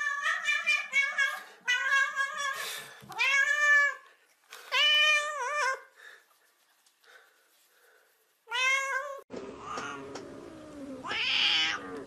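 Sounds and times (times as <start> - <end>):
cat meowing: 11.0 - 12.0.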